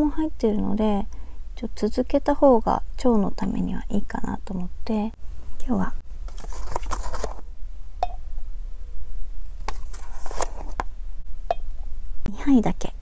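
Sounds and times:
plastic pouch rustling: 0:06.2 - 0:07.4, 0:09.6 - 0:10.8.

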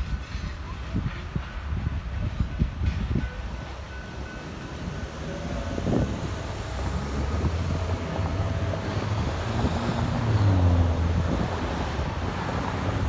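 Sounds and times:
wind buffeting microphone: 0:00.0 - 0:13.0
road traffic driving by: 0:03.7 - 0:13.0.

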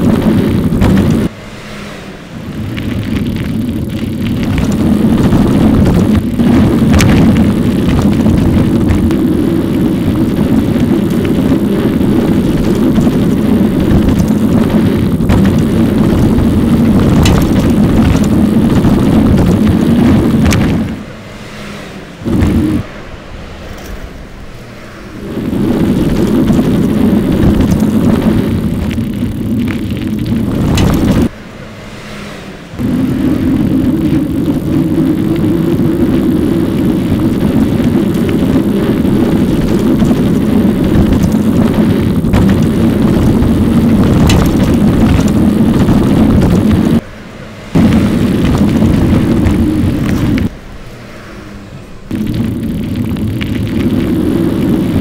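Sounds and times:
wind and road noise: 0:00.0 - 0:55.0.

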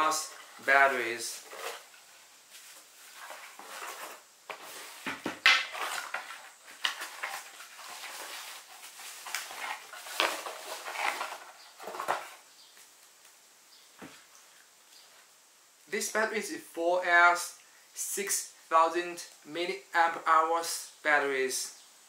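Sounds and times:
cardboard rustling and scraping: 0:00.0 - 0:12.5.

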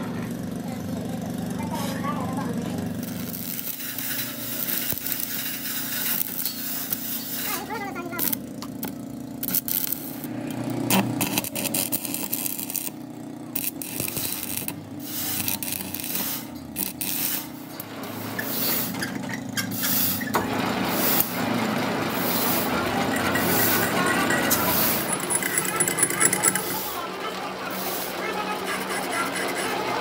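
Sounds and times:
lathe turning: 0:02.6 - 0:07.4, 0:20.4 - 0:30.0
arc welding crackling: 0:02.8 - 0:17.8.

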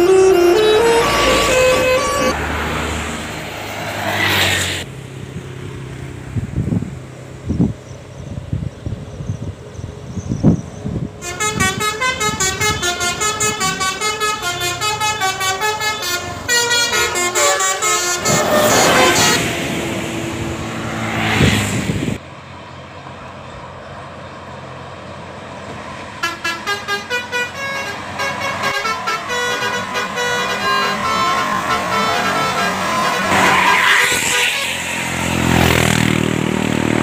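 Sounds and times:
multi-tone bus horn tune: 0:00.0 - 0:03.2, 0:11.2 - 0:20.8, 0:26.2 - 0:36.1
bus passing by: 0:00.0 - 0:37.0.

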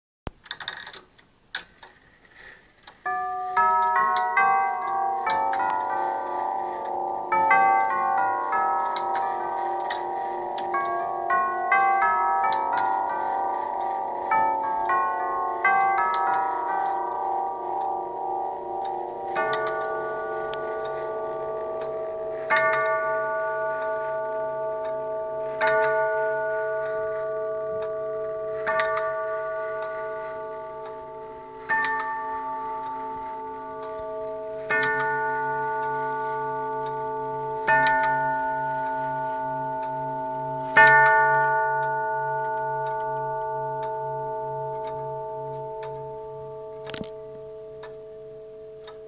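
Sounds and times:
clock tubular bells striking: 0:03.0 - 0:49.0.

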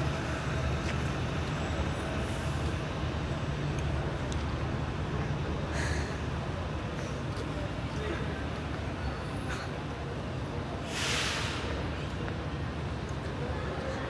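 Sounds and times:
low city rumble: 0:00.0 - 0:14.0
brief hisses: 0:10.8 - 0:11.8.

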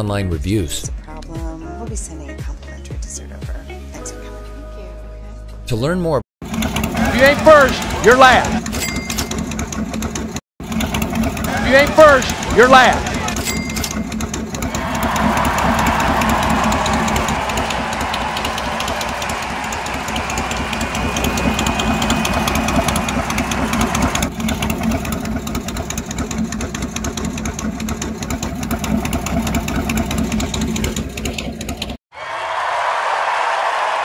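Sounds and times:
race car engine running: 0:06.4 - 0:32.0.

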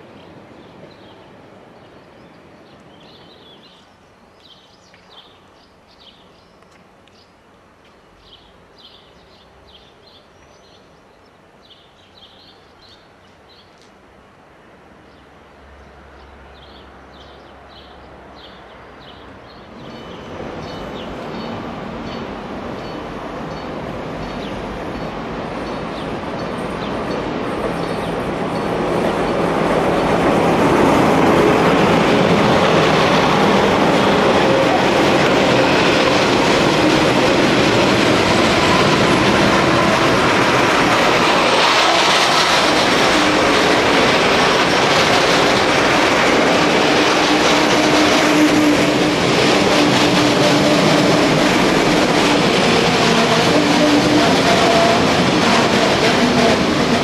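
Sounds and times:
freight train wagons rolling past: 0:16.7 - 0:57.0.

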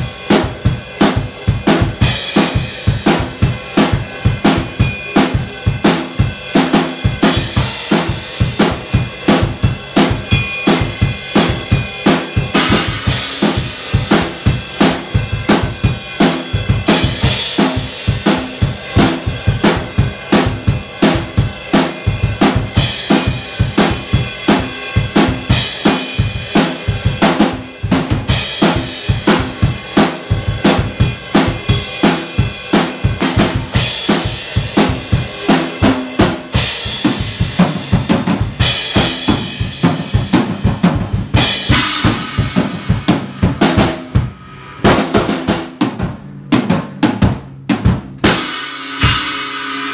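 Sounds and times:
rock drum beat: 0:00.0 - 0:49.9
cymbal crashes: 0:41.6 - 0:45.1, 0:48.3 - 0:49.9.

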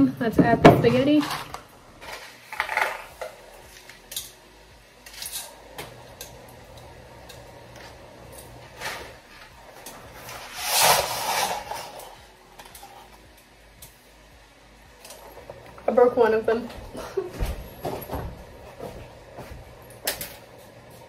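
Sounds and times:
dry spaghetti sliding out: 0:10.2 - 0:12.2.

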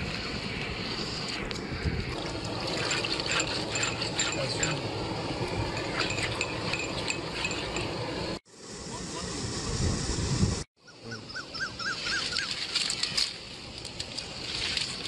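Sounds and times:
river water washing: 0:02.1 - 0:07.9, 0:11.8 - 0:15.0.

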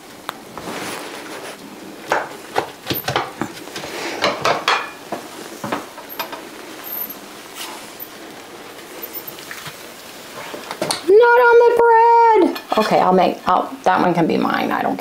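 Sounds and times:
light sizzle: 0:00.0 - 0:15.0
utensil scraping frying pan: 0:03.2 - 0:10.9, 0:12.5 - 0:13.4.

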